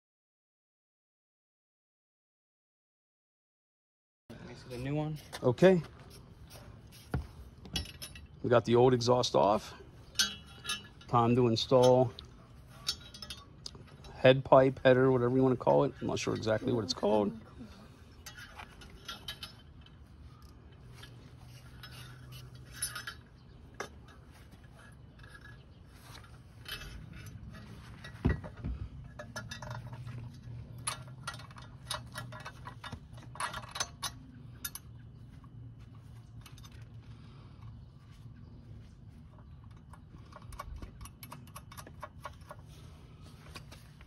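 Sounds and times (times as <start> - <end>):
light metallic clicks and clinks: 7.6 - 38.4, 39.2 - 44.0.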